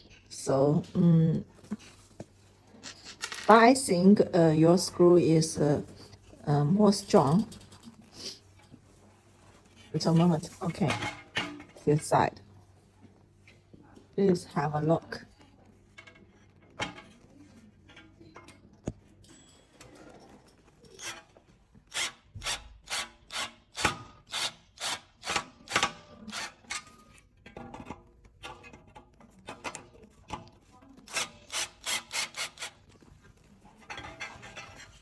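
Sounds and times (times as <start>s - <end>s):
screwdriver rasping screw into metal: 21.9s - 27.2s, 31.1s - 32.8s.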